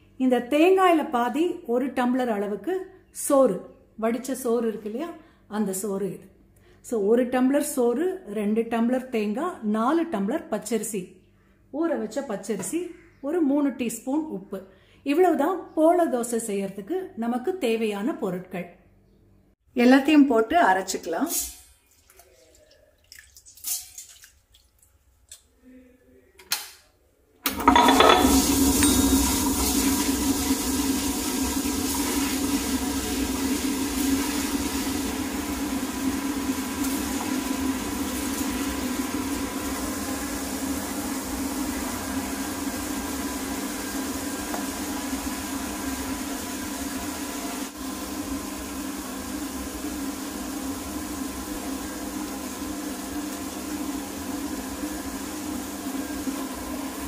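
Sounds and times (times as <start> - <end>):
wet grinder humming: 27.5 - 57.0.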